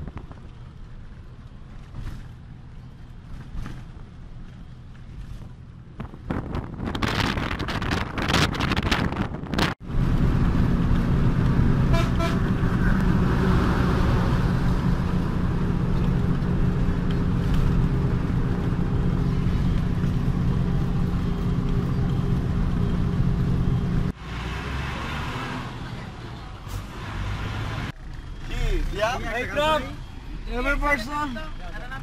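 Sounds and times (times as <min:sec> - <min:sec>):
bus engine running: 0:00.0 - 0:32.0
road noise: 0:00.0 - 0:32.0
vehicle horn toot: 0:11.9 - 0:12.5.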